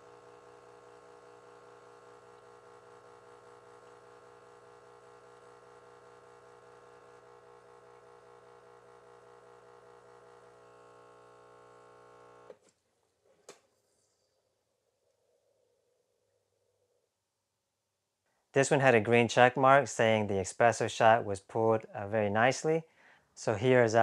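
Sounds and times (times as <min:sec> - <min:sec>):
espresso pump humming: 0:00.0 - 0:12.6.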